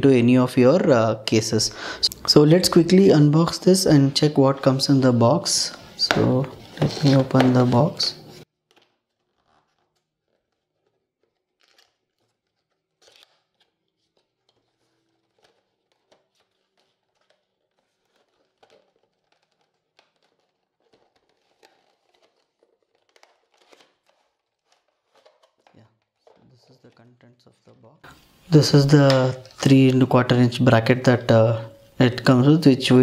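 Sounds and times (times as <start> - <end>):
packaging rustling and crinkling: 1.9 - 27.0
small clicks and scrapes: 8.4 - 26.9.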